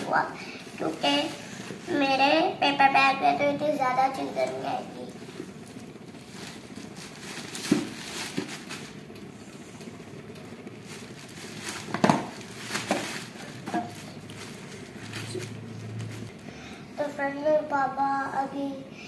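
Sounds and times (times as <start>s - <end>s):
plastic bag rustling: 5.2s - 16.4s
plastic containers knocking: 11.9s - 13.9s.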